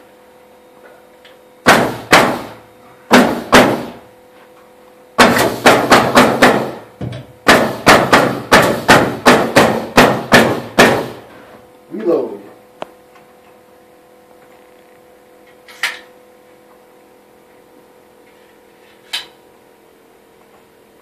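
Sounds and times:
nail gun firing: 1.6 - 4.0, 5.2 - 6.8, 7.4 - 11.2.

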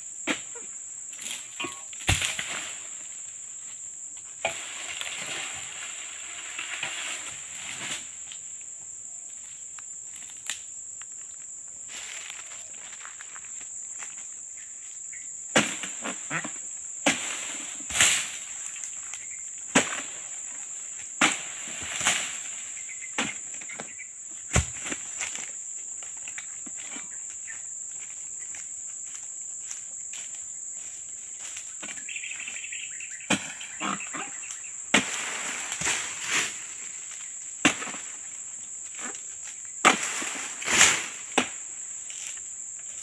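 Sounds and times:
high insect drone: 0.0 - 43.0
fronds and fruit dropping thumps: 1.2 - 2.9, 19.7 - 20.3, 21.2 - 25.5, 34.9 - 38.3, 39.8 - 41.7.

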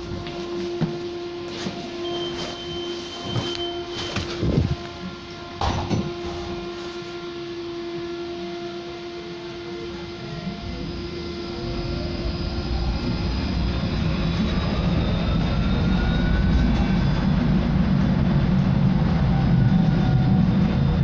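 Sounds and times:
electric motor whine rising: 3.4 - 20.8
wheels rumbling on rails: 10.7 - 21.0.

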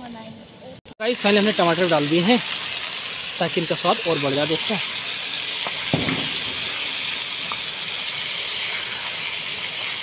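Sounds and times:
vegetables sizzling in a pan: 0.0 - 10.0.

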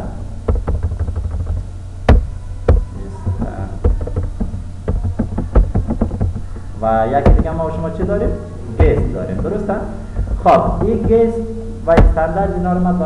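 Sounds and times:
keyboard keys clicking: 0.5 - 7.5.

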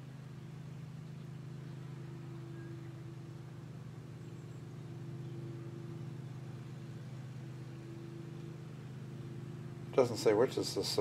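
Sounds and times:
steady low hum: 0.0 - 11.0
faint high tone: 1.8 - 10.4.

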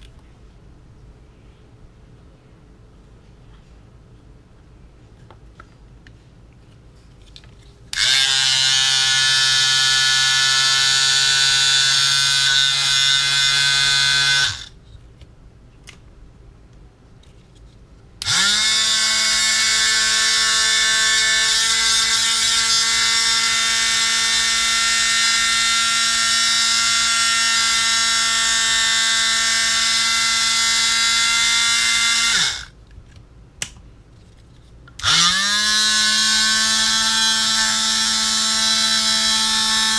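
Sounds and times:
small electric motor whining: 7.9 - 14.7, 18.2 - 32.7, 35.0 - 39.9.

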